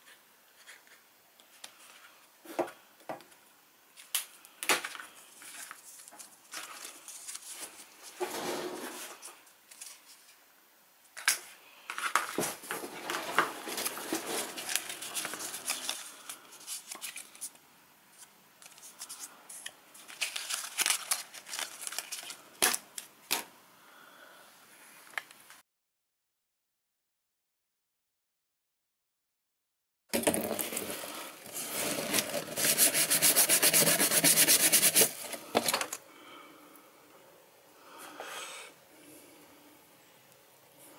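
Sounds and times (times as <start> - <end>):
plastic strips clicking and rustling: 11.2 - 17.6, 18.2 - 23.5.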